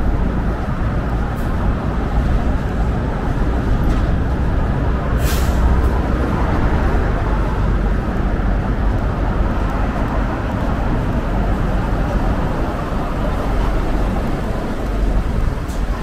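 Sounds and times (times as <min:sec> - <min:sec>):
heavy road traffic rumble: 0:00.0 - 0:16.0
air brakes hissing: 0:05.2 - 0:06.0.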